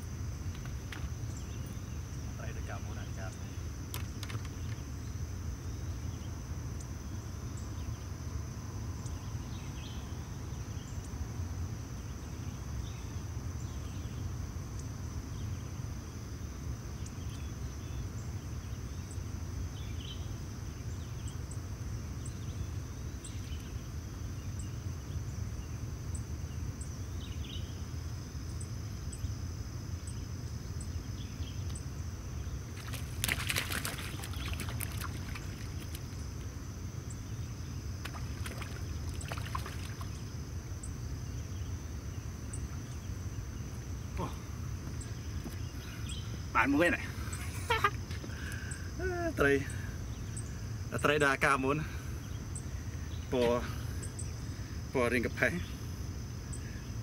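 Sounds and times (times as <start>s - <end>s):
insects droning: 0.0s - 57.0s
loud splash in water: 32.8s - 36.0s, 38.0s - 40.2s.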